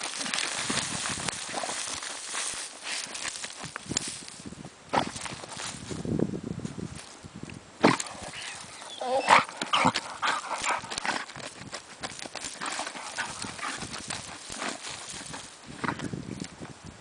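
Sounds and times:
dog digging and snuffling: 0:00.0 - 0:04.3, 0:07.8 - 0:16.4
scrabbling and rustling in dry grass: 0:00.0 - 0:16.9.

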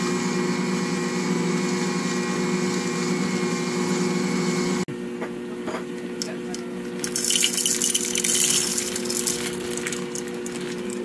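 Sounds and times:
stand mixer motor hum: 0:00.0 - 0:04.9.

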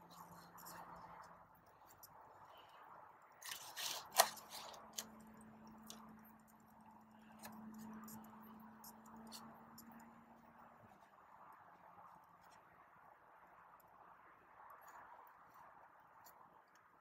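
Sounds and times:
soil rustling and crunching: 0:00.0 - 0:09.6.

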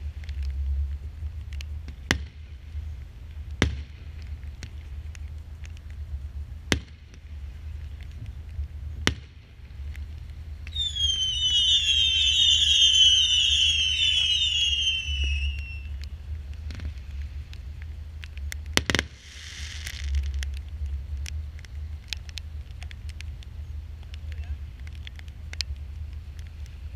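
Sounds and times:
whistling fireworks: 0:10.6 - 0:16.2, 0:18.8 - 0:20.3
firework bangs: 0:10.7 - 0:16.0
brief hiss: 0:19.0 - 0:20.3.

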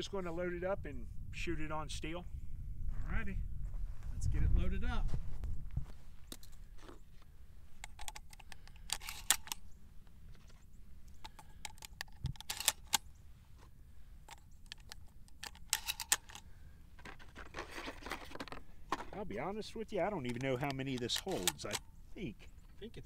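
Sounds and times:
soft rustle: 0:02.9 - 0:07.8, 0:09.0 - 0:11.3
shotgun shells clicking into magazine: 0:07.8 - 0:09.6, 0:11.1 - 0:13.0, 0:14.3 - 0:18.6, 0:20.2 - 0:21.9.

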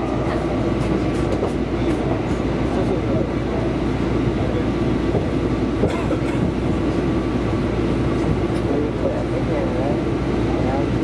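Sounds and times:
train wheels on rails: 0:00.0 - 0:11.0
rail joint clicks: 0:00.2 - 0:03.2, 0:08.0 - 0:08.8.

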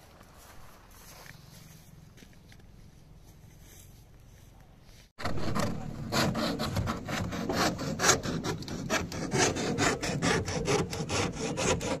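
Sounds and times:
hand saw cutting plastic pipe: 0:05.2 - 0:12.0.

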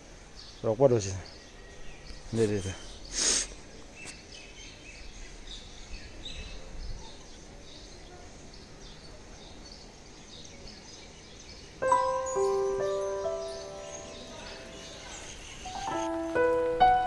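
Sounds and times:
small birds chirping: 0:00.0 - 0:17.0
music: 0:11.8 - 0:15.0, 0:15.7 - 0:17.0.

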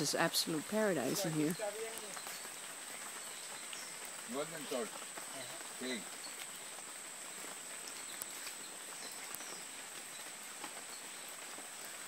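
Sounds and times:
high-pitched hiss: 0:00.0 - 0:12.0
small ticks: 0:04.9 - 0:12.0.

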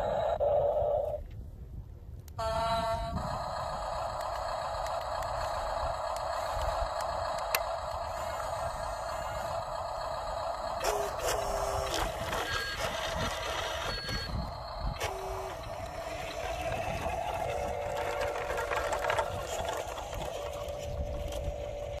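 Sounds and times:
toy truck electric motor whining: 0:02.4 - 0:22.0
short electronic beeps: 0:12.2 - 0:15.0.

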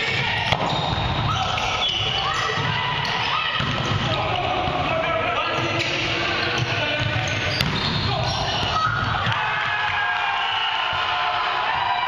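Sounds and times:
sneakers squeaking on gym floor: 0:00.0 - 0:04.3, 0:05.4 - 0:09.3
players' voices echoing: 0:00.0 - 0:12.0.

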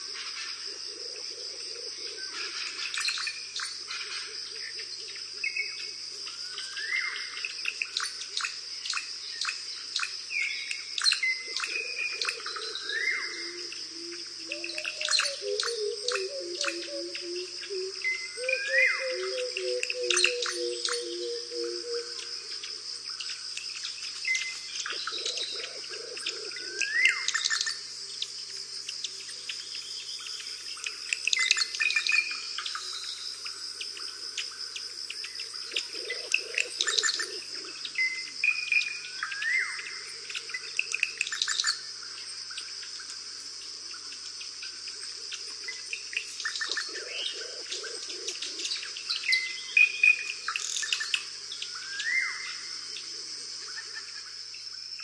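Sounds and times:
high insect drone: 0:00.0 - 0:55.0
birds chirping and calling: 0:10.4 - 0:22.3, 0:23.2 - 0:27.8, 0:35.2 - 0:41.8, 0:45.7 - 0:54.2.

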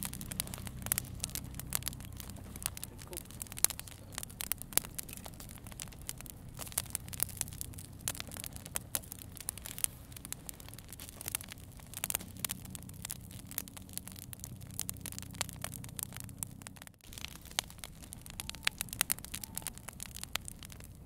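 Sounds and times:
campfire crackling: 0:00.0 - 0:21.0.

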